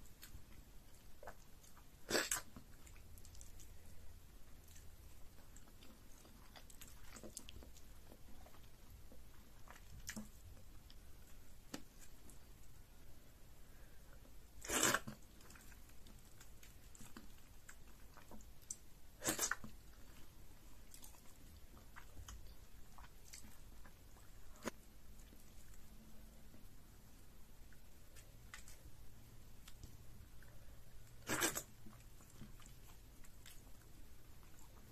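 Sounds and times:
chewing with wet mouth clicks: 0.1s - 3.9s, 4.5s - 12.4s, 20.8s - 25.9s, 29.6s - 34.9s.

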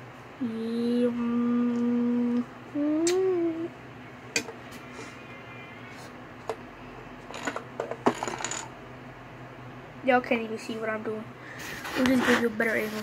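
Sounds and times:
person humming: 0.4s - 3.7s.

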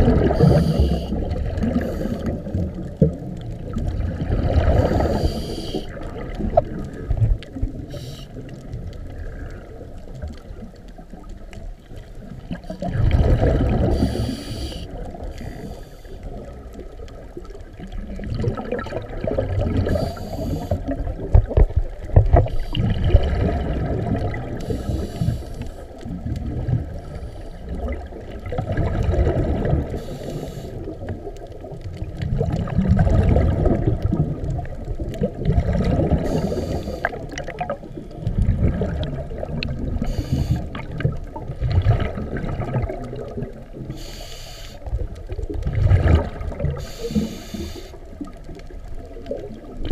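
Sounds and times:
exhaled bubbles rushing: 0.0s - 15.4s, 16.3s - 30.1s, 30.8s - 43.9s, 44.8s - 49.9s
scuba regulator inhale hiss: 0.2s - 2.4s, 4.8s - 6.0s, 7.9s - 8.4s, 13.8s - 16.4s, 19.8s - 21.0s, 22.4s - 23.0s, 24.6s - 26.0s, 27.0s - 27.8s, 29.9s - 31.0s, 36.1s - 37.3s, 40.0s - 40.9s, 43.9s - 44.9s, 46.8s - 48.0s.

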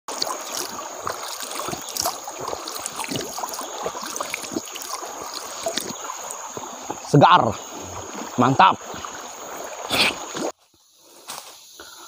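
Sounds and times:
hands splashing in water: 0.1s - 6.7s
stream trickling: 0.1s - 11.3s.

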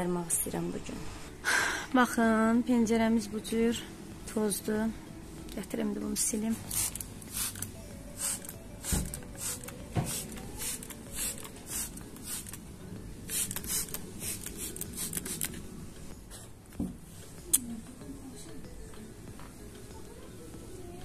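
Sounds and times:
spray bottle hissing: 6.6s - 12.6s, 13.3s - 15.6s.

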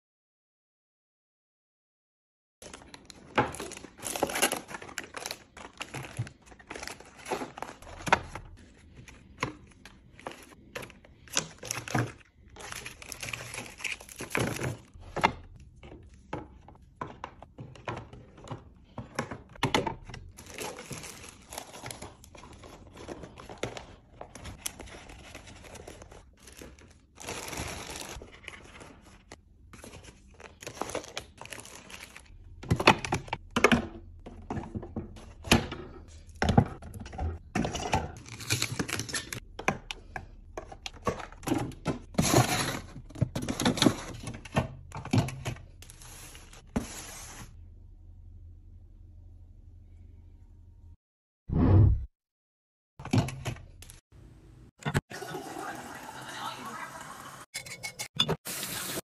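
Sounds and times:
packaging crinkling: 2.6s - 15.0s, 20.3s - 32.4s.

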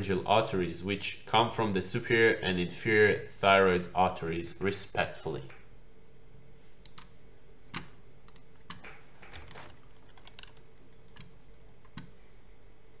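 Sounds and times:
faint room hum: 0.0s - 13.0s
computer mouse and keyboard clicks: 6.8s - 7.1s, 7.7s - 12.2s.

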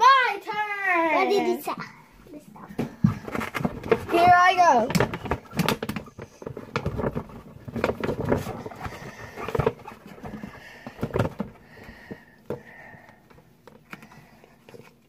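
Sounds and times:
packaging rustling and crinkling: 3.0s - 11.9s.

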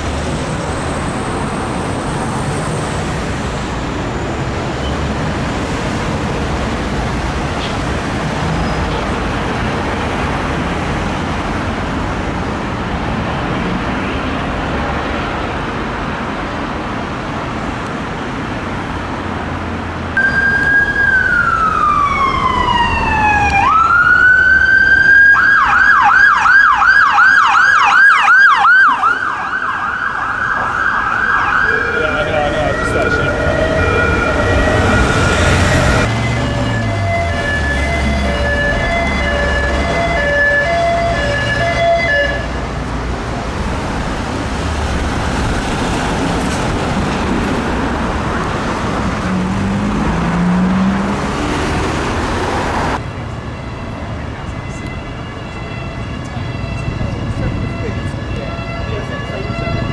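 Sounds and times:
ambulance siren wailing: 20.2s - 42.9s, 48.0s - 59.9s.

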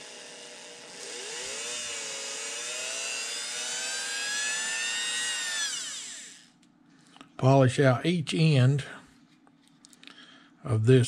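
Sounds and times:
rotary tool motor whining: 0.0s - 6.6s.

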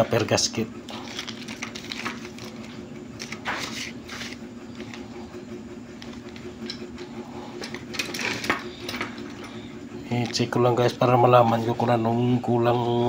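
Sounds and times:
steady low hum: 0.0s - 13.0s
plastic packets rustling: 0.9s - 5.0s.

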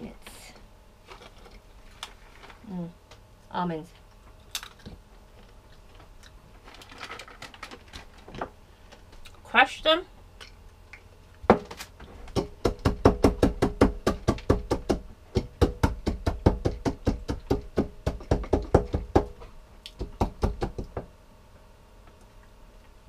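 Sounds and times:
pounding nuts sharp knocks: 11.5s - 19.4s.

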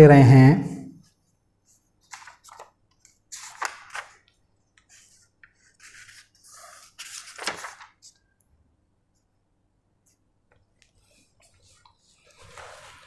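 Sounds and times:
scratchy rubbing strokes: 11.1s - 13.0s.

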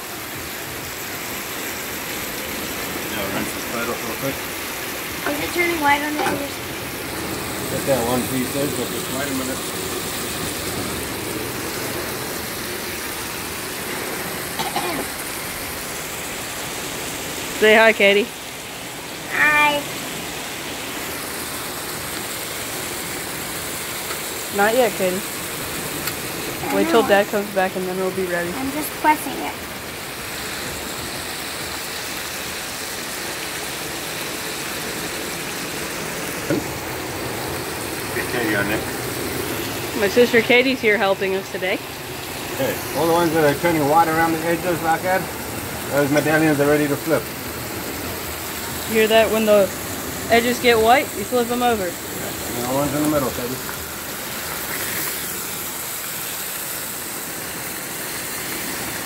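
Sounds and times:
fish and onions sizzling: 0.0s - 59.0s.

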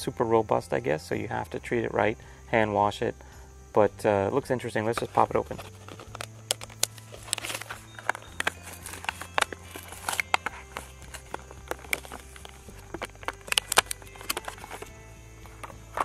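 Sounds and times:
plastic packaging crinkling: 5.0s - 16.0s.

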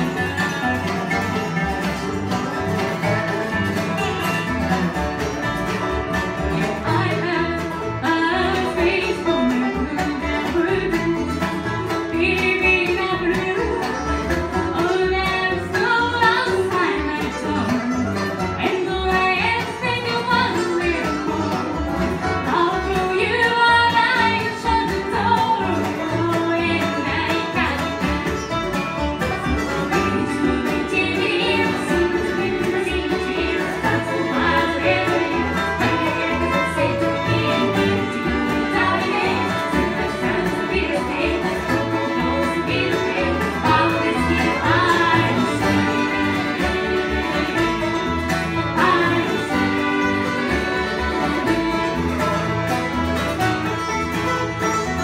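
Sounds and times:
bluegrass band playing: 0.0s - 55.0s
person singing: 30.0s - 47.9s, 48.6s - 52.4s.

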